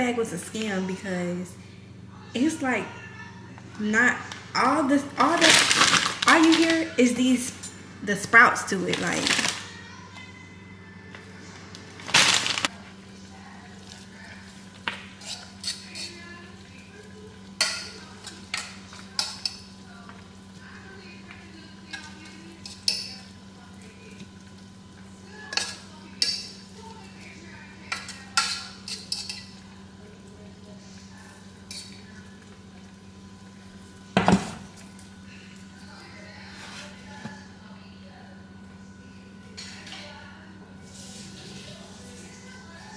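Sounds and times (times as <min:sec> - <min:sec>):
steady low hum: 0:00.0 - 0:41.2
utensil scraping a pot: 0:15.1 - 0:16.3.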